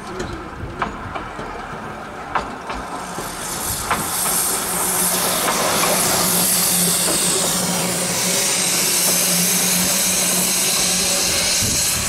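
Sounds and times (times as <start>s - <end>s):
steam locomotive approaching: 0.0s - 12.0s
steam hissing: 2.7s - 12.0s.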